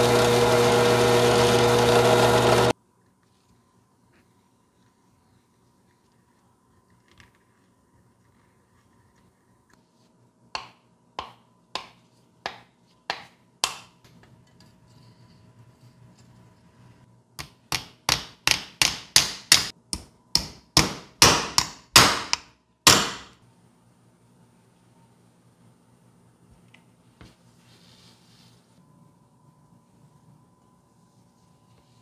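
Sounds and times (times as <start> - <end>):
hammer striking nail: 17.4 - 23.4.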